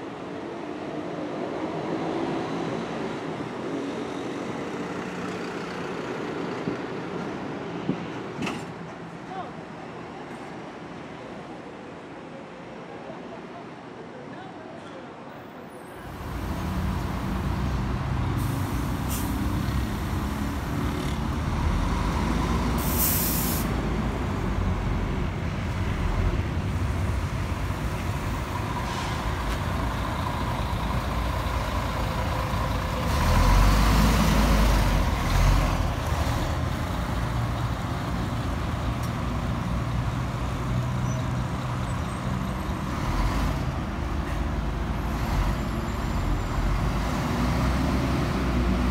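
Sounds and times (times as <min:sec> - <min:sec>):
diesel bus engines rumbling: 0:00.0 - 0:11.3, 0:15.3 - 0:48.9
air-brake hiss: 0:18.3 - 0:20.4, 0:22.8 - 0:23.8, 0:28.8 - 0:29.6.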